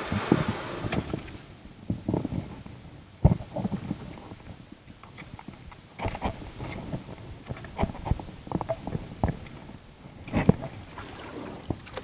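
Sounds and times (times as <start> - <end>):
paddle splashes and knocks: 0.0 - 2.1, 10.3 - 12.0.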